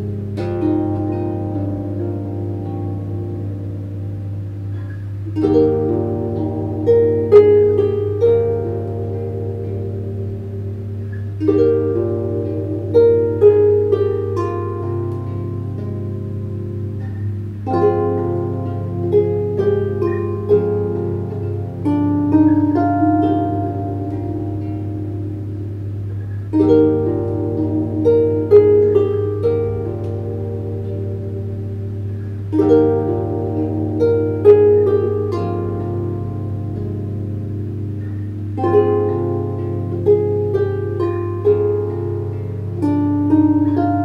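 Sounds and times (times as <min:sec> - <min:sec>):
harp plucked notes: 0:00.0 - 0:44.0.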